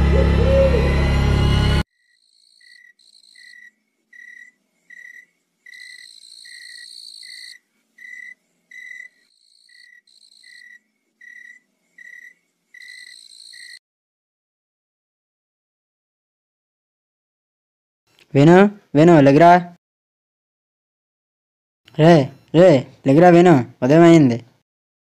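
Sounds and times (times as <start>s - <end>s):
loud music: 0.0s - 1.8s
crickets chirping: 1.9s - 13.8s.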